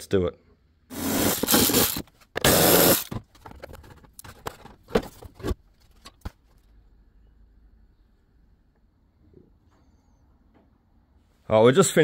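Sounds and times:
plastic scraping and rattling: 1.0 - 6.6.

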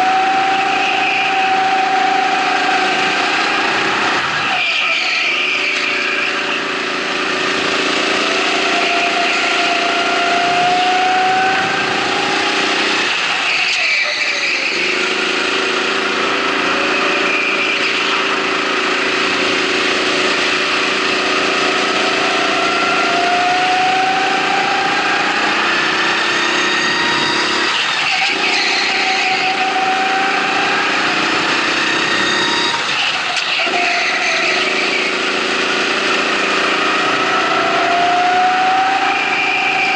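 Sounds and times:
go-kart engine revving: 0.0 - 39.9.

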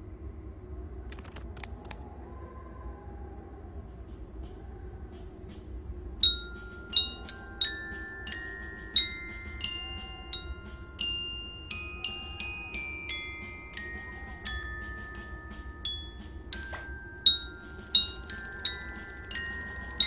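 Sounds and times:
soft low hum: 0.0 - 20.0
glockenspiel-like bell notes: 5.5 - 20.0.

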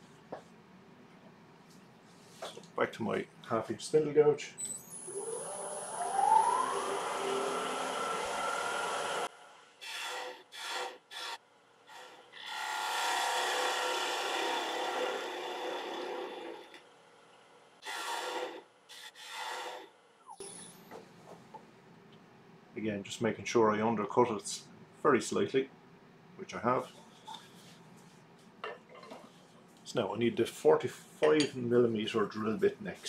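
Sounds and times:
wood lathe whining: 4.9 - 16.8, 17.8 - 19.9
gouge cutting spinning wood: 5.1 - 16.8, 17.8 - 19.9.

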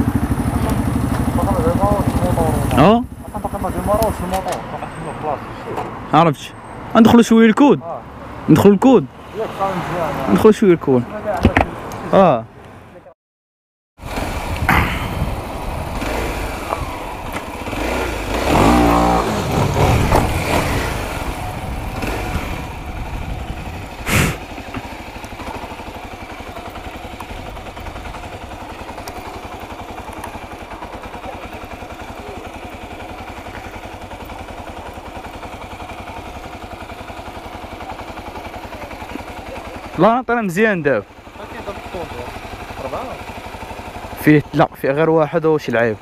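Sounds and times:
motorcycle engine revving: 0.0 - 5.4, 14.0 - 46.0
wind rushing over microphone: 14.3 - 16.0, 19.6 - 24.4.

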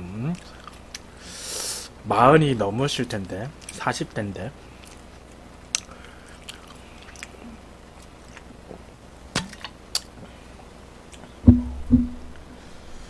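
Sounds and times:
soft chewing: 0.3 - 1.2, 3.6 - 3.9, 4.6 - 8.9, 9.5 - 11.4.

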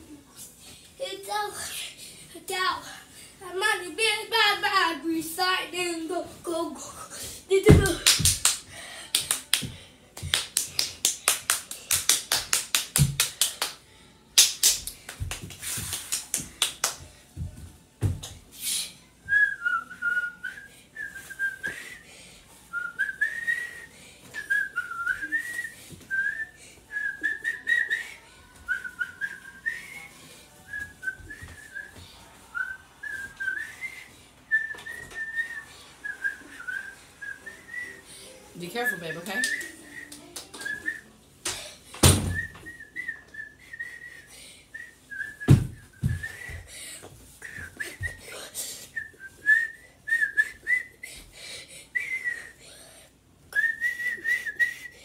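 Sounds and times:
person whistling a tune: 22.7 - 32.0, 32.6 - 38.0, 42.2 - 46.6, 49.0 - 51.2, 52.0 - 52.6, 53.5 - 55.0.

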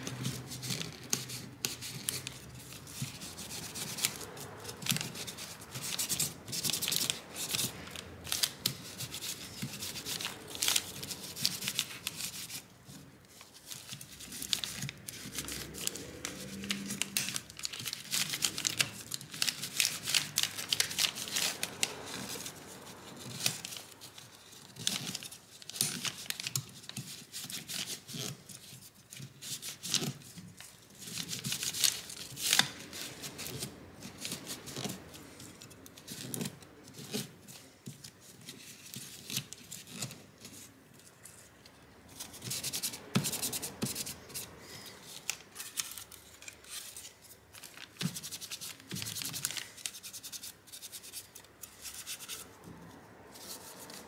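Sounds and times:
plastic crinkling: 0.0 - 41.5, 42.1 - 50.3.

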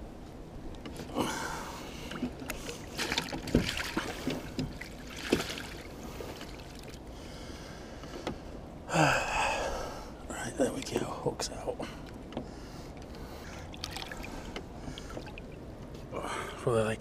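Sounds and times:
water sounds: 1.0 - 7.2, 9.7 - 15.9
knocks and rustles of net: 2.2 - 6.5.

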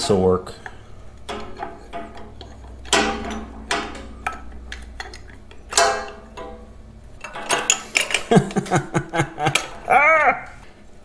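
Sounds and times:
metal ringing twang: 1.3 - 4.6, 5.7 - 7.8
glass and metal clinks: 7.2 - 8.4.

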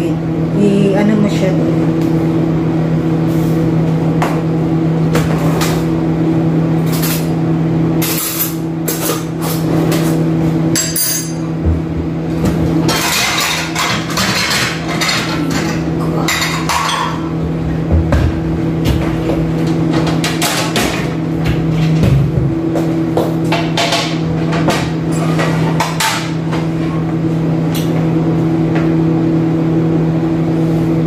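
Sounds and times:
steady low hum: 0.0 - 31.0
dishes and utensils clinking: 12.8 - 17.4.

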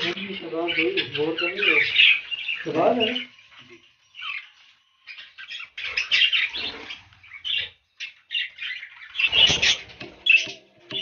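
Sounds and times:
budgerigars chirping: 0.0 - 11.0
flurry of wings: 9.2 - 11.0.

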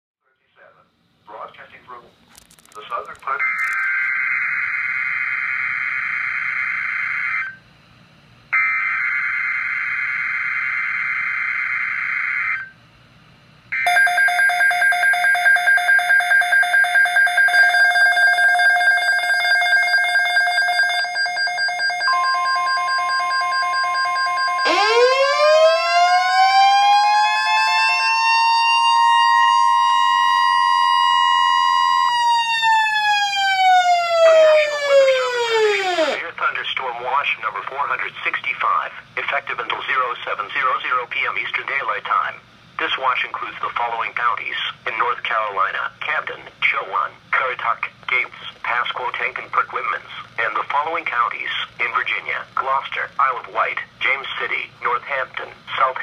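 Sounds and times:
steady high alert tone: 3.3 - 4.2, 13.8 - 29.1, 34.2 - 36.2
siren tone rising and falling: 13.8 - 36.2.

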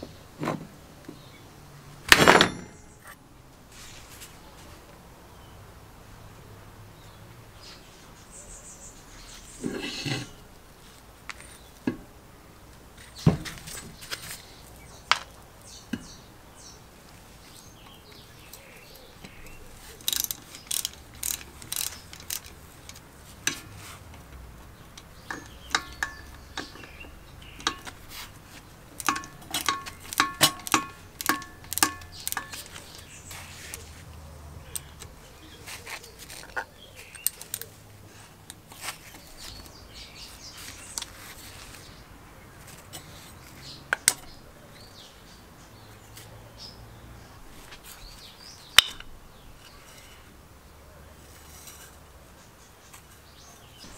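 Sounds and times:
metal tool clinks and knocks: 2.1 - 3.0, 29.0 - 33.0
ratchet wrench clicking: 20.0 - 23.6, 29.0 - 32.8.

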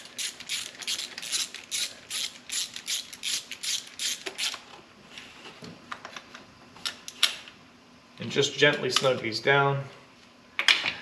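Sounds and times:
hand ratchet clicking: 0.0 - 4.6.

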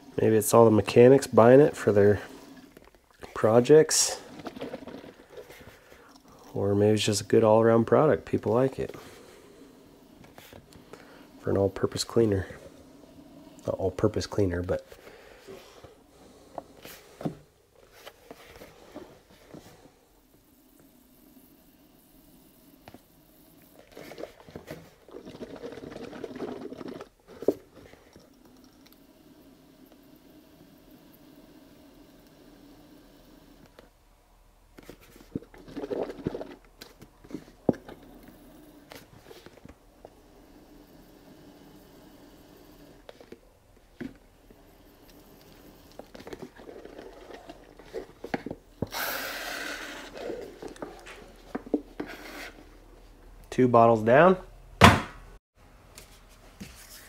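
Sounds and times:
plastic bottle crackling: 4.2 - 5.9
liquid glugging: 4.2 - 6.5, 23.9 - 28.9.

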